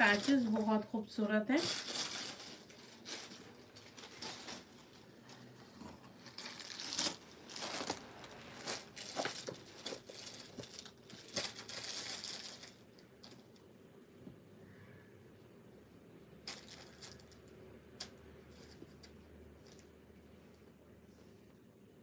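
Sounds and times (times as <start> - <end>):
fabric rustling: 0.0 - 13.5
plastic packaging crinkling: 0.0 - 13.7, 16.4 - 19.9.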